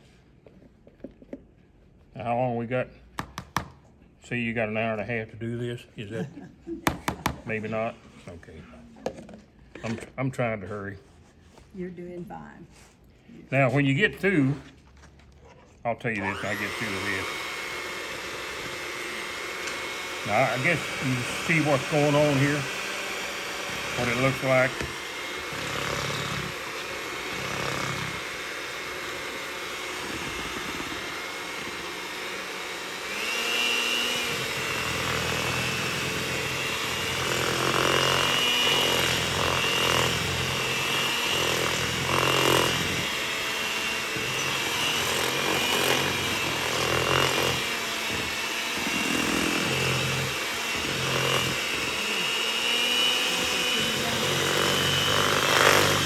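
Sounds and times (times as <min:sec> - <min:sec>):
electric hand mixer whining: 0:00.0 - 0:00.2, 0:05.7 - 0:08.0, 0:16.0 - 0:56.0.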